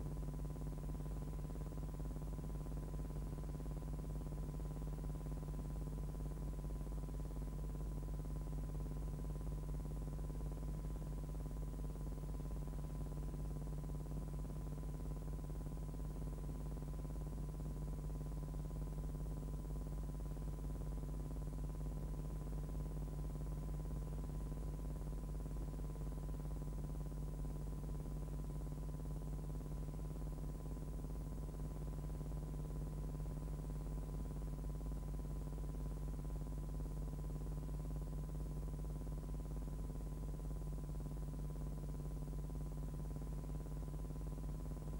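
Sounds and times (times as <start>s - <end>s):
steady low hum: 0.0s - 44.9s.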